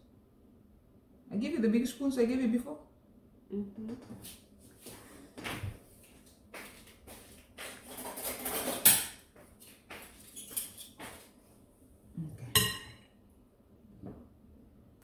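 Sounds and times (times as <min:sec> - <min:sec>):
metal spoon clinking on bowl: 0:12.5 - 0:13.0.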